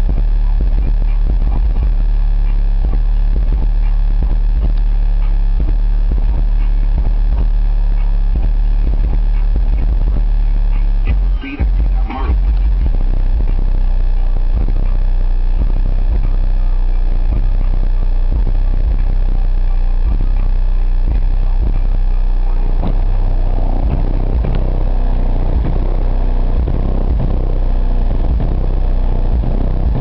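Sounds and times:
distorted subwoofer bass booming: 0.0s - 30.0s.

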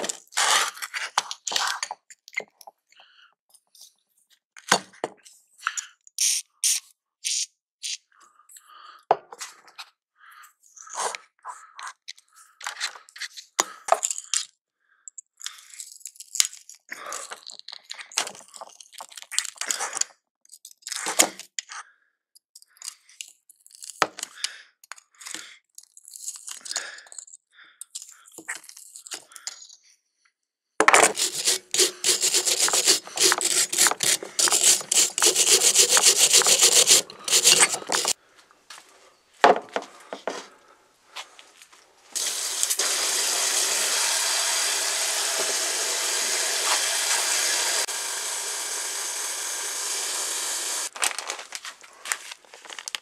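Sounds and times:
pliers clicking and scraping: 30.9s - 38.2s
hose nozzle spraying water: 31.0s - 38.2s, 42.1s - 50.9s
wire brush scrubbing metal: 31.0s - 38.2s, 42.2s - 50.9s.

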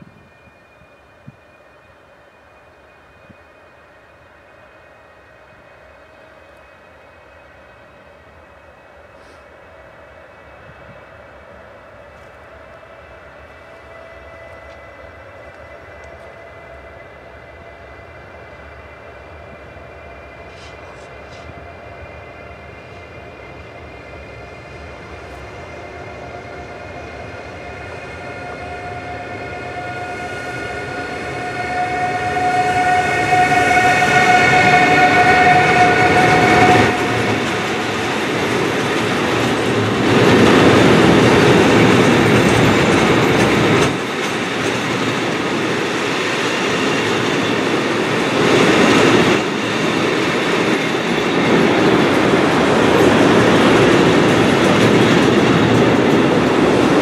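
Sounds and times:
electric locomotive whine: 0.0s - 57.0s
train wagons rumbling: 19.5s - 57.0s
wheel clatter over rail joints: 36.6s - 46.2s, 49.6s - 57.0s.

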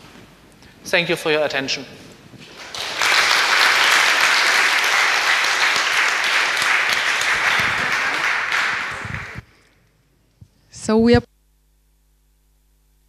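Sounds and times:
audience clapping: 2.4s - 9.7s.

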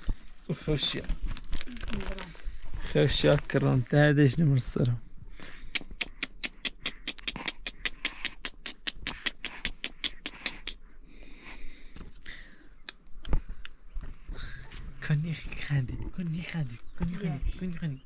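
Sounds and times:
soft rustling: 0.0s - 4.2s.

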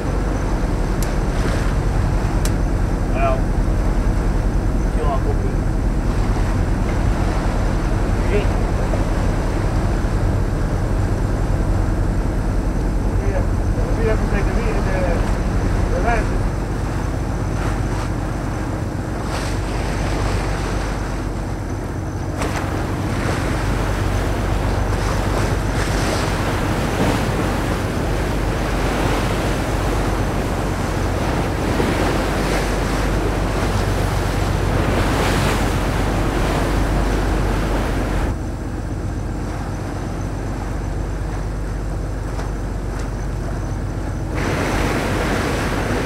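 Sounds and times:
wind on microphone: 0.0s - 38.4s
low engine hum: 0.0s - 46.0s
water splashing along boat hull: 0.0s - 46.0s.

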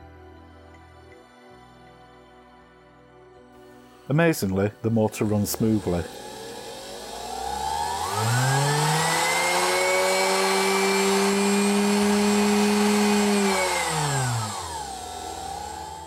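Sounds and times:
electric motor humming: 5.0s - 16.0s.

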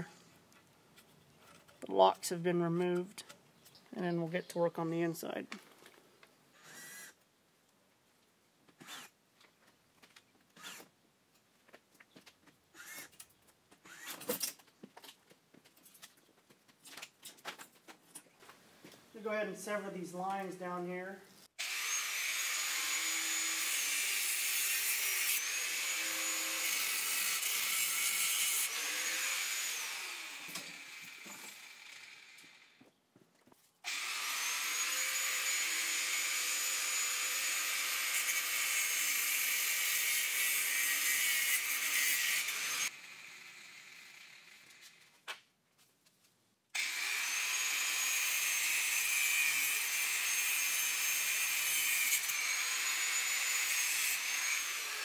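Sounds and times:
power tool motor whining: 13.9s - 14.4s, 21.6s - 32.8s, 33.9s - 45.1s, 46.8s - 55.0s.

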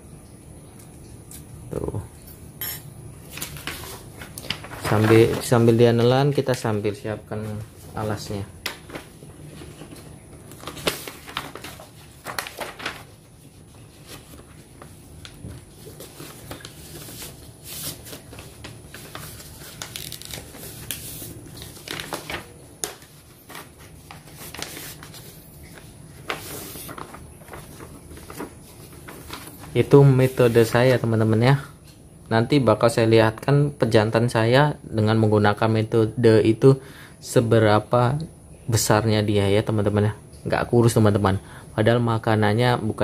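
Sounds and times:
paper crumpling: 3.3s - 31.1s.

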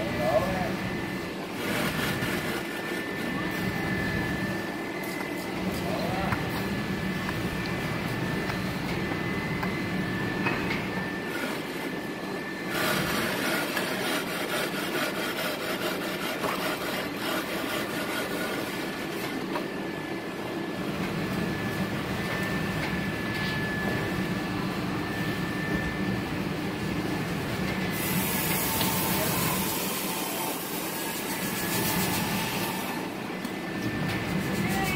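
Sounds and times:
machinery running with high whine: 0.0s - 34.9s.

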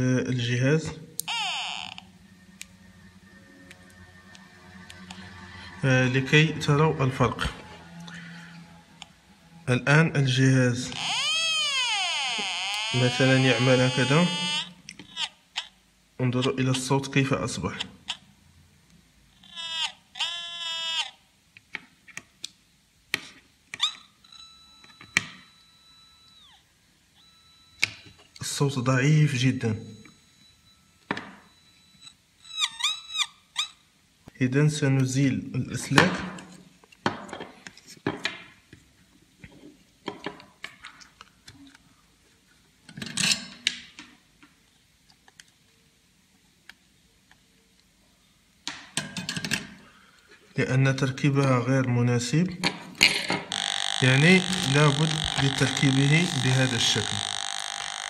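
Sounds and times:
buzzy beep from metal detector: 23.9s - 26.6s
faint steady tone: 24.1s - 32.5s.

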